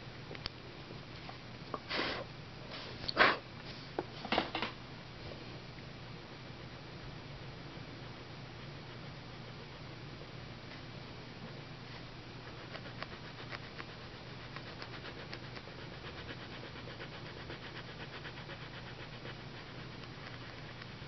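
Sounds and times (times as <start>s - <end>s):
low steady hum: 0.0s - 21.0s
pencil scratching on paper: 12.4s - 20.8s.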